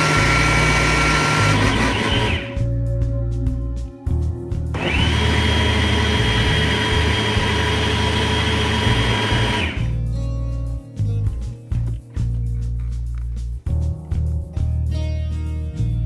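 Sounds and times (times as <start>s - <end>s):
blender running through liquid: 0.0s - 2.6s, 4.8s - 9.9s
background music: 0.0s - 16.0s.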